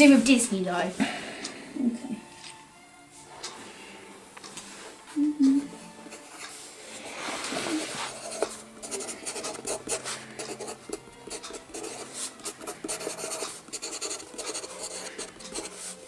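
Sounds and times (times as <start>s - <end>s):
pencil scratching on paper: 7.0s - 16.0s.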